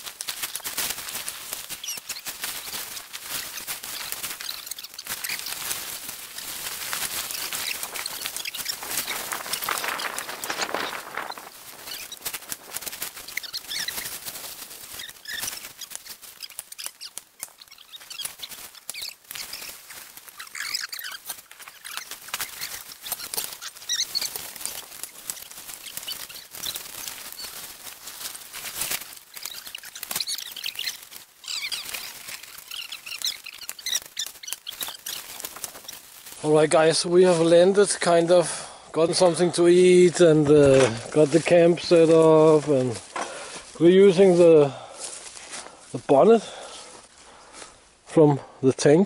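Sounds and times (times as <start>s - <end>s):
tarpaulin rustling and flapping: 0.0s - 47.4s
high chirps: 1.4s - 36.4s.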